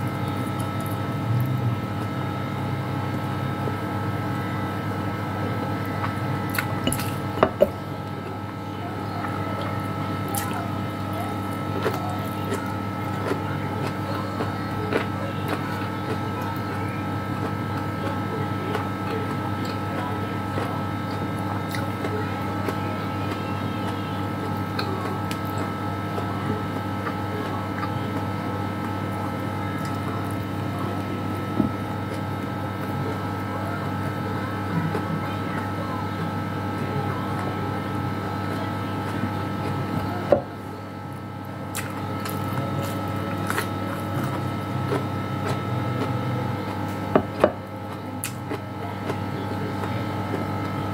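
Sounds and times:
appliance electrical hum: 0.0s - 50.9s
person eating with fingers: 9.2s - 33.5s, 41.7s - 50.9s.

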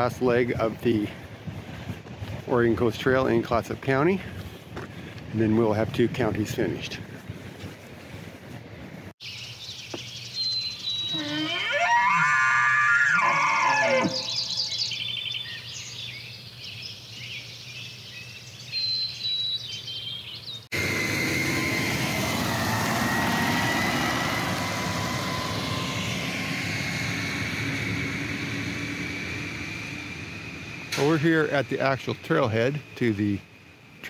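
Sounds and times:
high bird chirps: 9.2s - 12.2s, 13.2s - 20.7s
elk call: 11.1s - 14.6s
rushing engine noise with whine: 20.7s - 34.0s.

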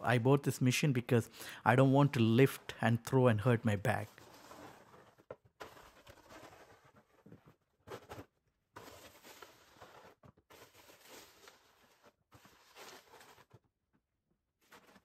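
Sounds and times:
snow shovel scraping snow: 4.0s - 7.1s, 8.8s - 13.5s.

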